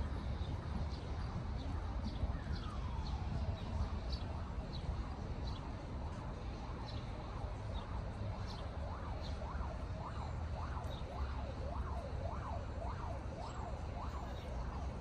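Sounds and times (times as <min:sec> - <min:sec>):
city traffic rumble: 0:00.0 - 0:15.0
emergency siren yelping: 0:08.3 - 0:15.0.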